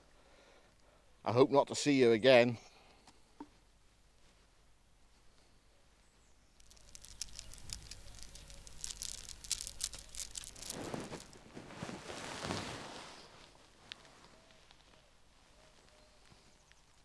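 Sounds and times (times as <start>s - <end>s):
metallic clinking and rattling: 6.6s - 11.5s.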